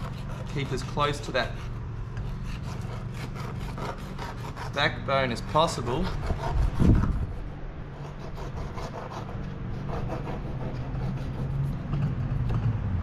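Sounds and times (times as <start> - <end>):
knife scraping through fish: 0.0 - 4.8
steady low hum: 0.0 - 13.0.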